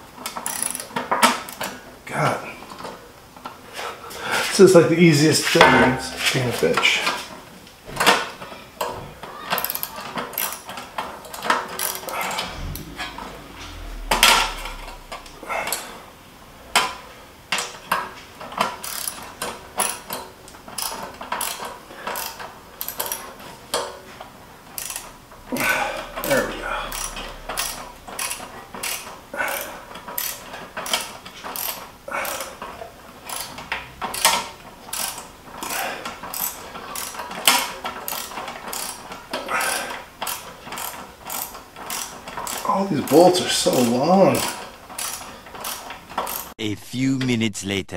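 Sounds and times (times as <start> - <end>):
hand ratchet clicking: 0.3 - 0.9, 44.4 - 46.5.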